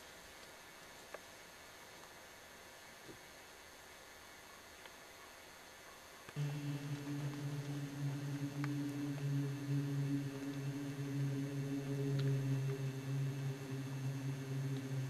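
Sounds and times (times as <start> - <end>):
faint hiss: 6.4 - 15.0
low humming drone: 6.4 - 15.0.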